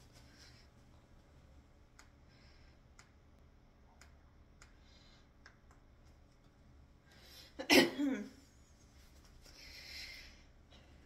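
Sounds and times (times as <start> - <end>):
faint sharp clicks: 1.9 - 2.2, 2.9 - 6.5.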